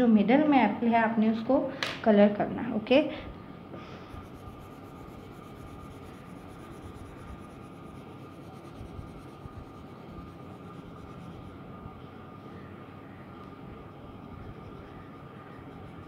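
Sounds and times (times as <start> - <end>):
colored pencil scratching on paper: 4.1 - 11.5.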